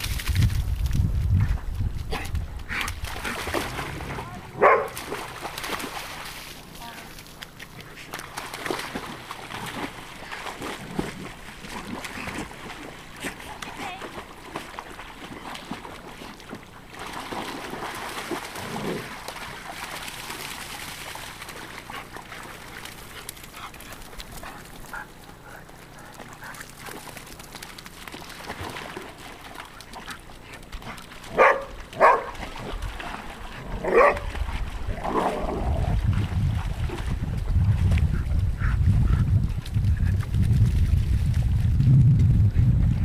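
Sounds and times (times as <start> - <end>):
dog barking: 4.6 - 5.0, 31.4 - 32.3, 33.9 - 34.2.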